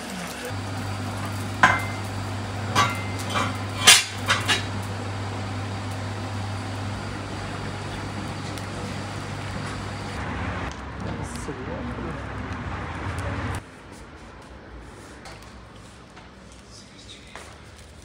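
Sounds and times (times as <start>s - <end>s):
metal utensils clinking on pot: 2.7s - 4.7s.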